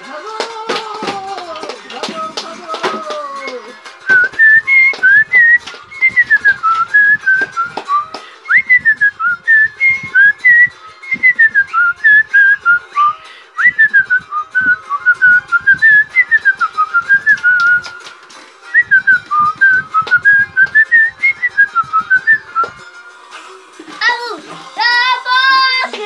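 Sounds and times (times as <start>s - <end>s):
person whistling a melody: 2.9s - 18.1s, 18.7s - 22.9s.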